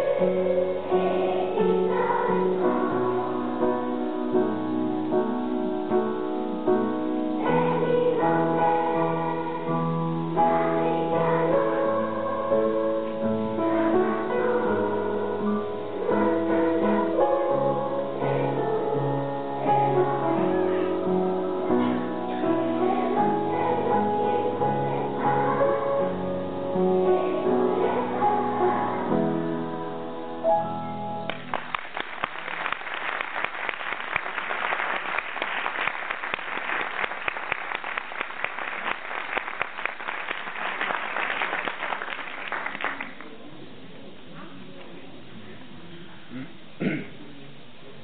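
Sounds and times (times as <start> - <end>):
children's choir singing: 0.0 - 30.8
audience applause: 31.3 - 43.3.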